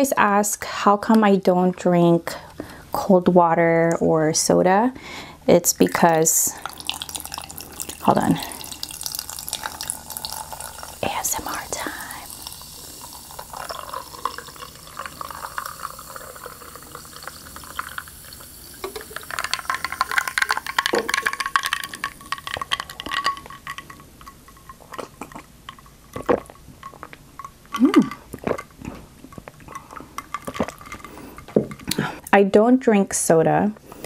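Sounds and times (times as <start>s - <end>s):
bubbles fizzing and crackling: 5.7s - 32.1s
sparkling water pouring over ice: 5.9s - 24.0s.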